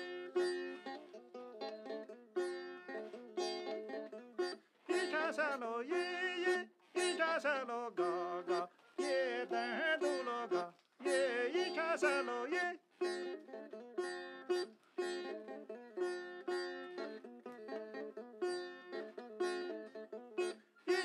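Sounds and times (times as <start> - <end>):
plucked lute playing: 0.0 - 21.0
person singing: 3.1 - 16.1.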